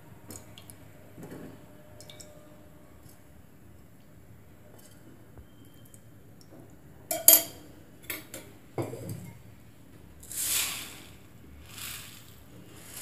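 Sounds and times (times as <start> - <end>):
metal vessels clinking: 7.1 - 9.4
soft short hissing: 10.3 - 13.0.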